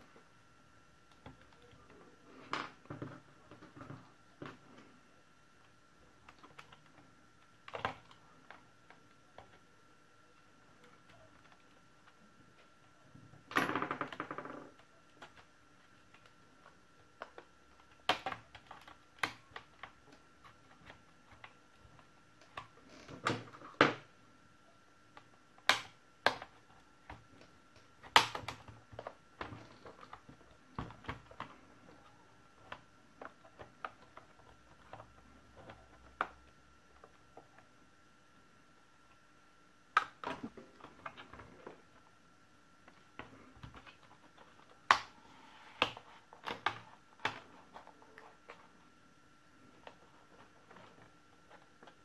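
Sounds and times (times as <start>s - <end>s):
plastic clicks and snaps: 25.2s - 26.5s, 27.1s - 32.0s, 42.9s - 45.1s.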